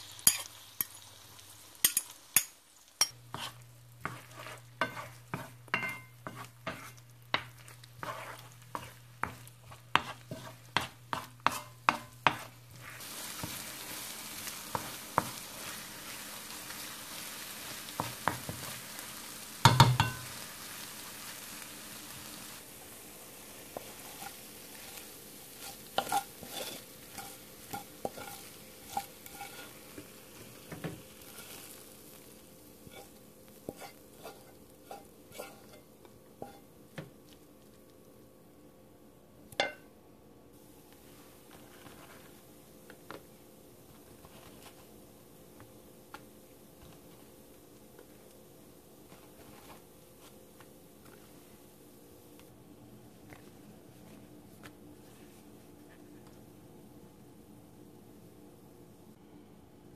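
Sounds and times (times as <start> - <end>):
eggs sizzling: 0.0 - 38.5
wooden spoon scraping a pan: 3.0 - 18.8, 23.7 - 32.1, 32.8 - 36.7, 41.2 - 42.5, 49.1 - 50.4.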